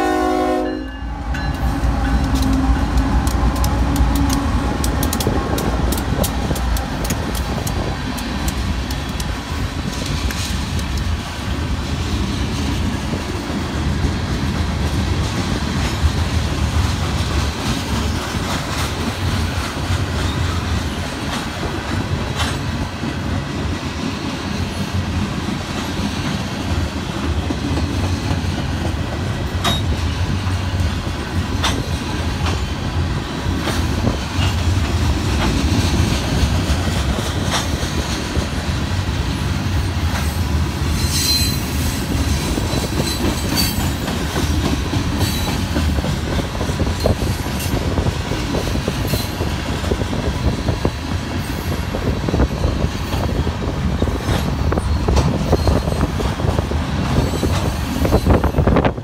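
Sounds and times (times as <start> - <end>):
freight train rumbling past: 0.0 - 59.0
high-pitched wheel squeal: 41.0 - 41.7.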